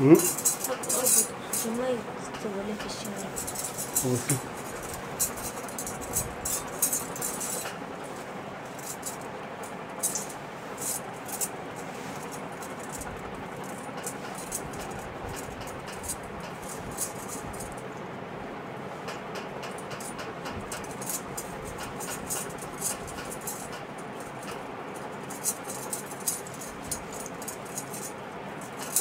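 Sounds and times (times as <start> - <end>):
background hiss: 0.0 - 5.4
metal bangles clinking: 0.2 - 2.0, 2.9 - 7.8, 8.6 - 9.2, 10.0 - 11.6, 12.2 - 17.8, 19.7 - 29.0.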